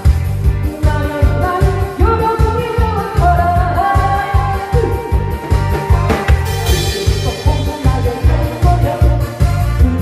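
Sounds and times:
woman singing: 0.6s - 10.0s
thumping beat: 4.8s - 9.3s.

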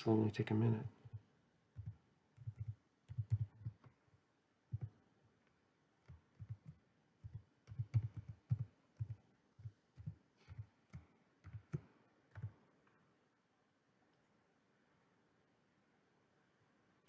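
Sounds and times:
typing on computer keyboard: 1.8s - 3.9s, 4.7s - 4.9s, 6.0s - 12.5s.

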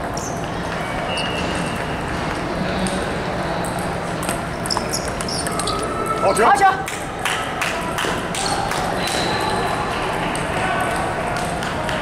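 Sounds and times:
din of large hall: 0.0s - 12.0s
table tennis balls ticking: 3.6s - 5.9s.

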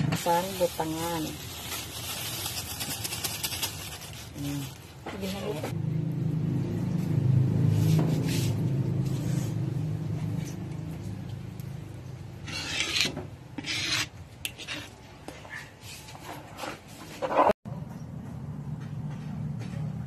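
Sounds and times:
metal spoon scraping a pan: 12.3s - 15.0s.

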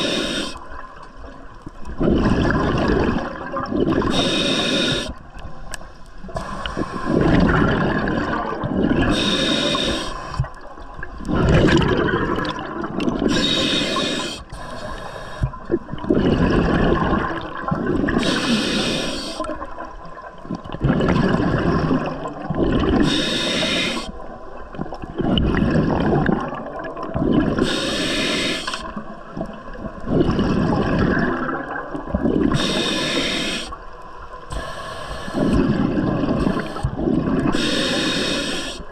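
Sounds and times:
regulator hiss on inhale: 0.0s - 0.7s, 4.1s - 5.2s, 5.9s - 7.4s, 9.1s - 10.5s, 13.3s - 15.6s, 18.2s - 19.5s, 23.0s - 24.2s, 27.6s - 29.0s, 32.5s - 33.8s, 34.4s - 38.9s
gurgling exhaled bubbles: 1.9s - 5.1s, 6.7s - 14.0s, 15.4s - 18.6s, 19.4s - 28.2s, 28.8s - 33.0s, 35.3s - 38.0s.

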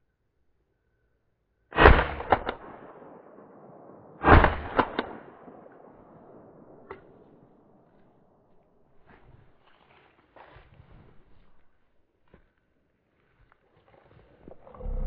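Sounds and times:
shotgun shots: 1.7s - 7.8s.

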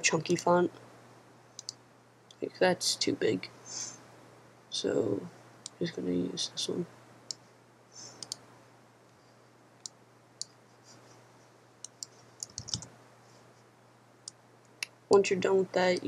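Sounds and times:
faint steady hum: 0.0s - 16.0s
computer mouse clicks: 1.6s - 1.8s, 8.1s - 8.4s, 11.8s - 12.9s.

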